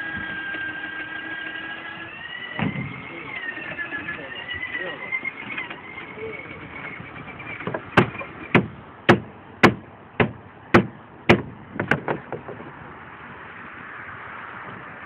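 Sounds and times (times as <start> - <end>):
hammer driving nails into plywood: 7.7 - 12.6.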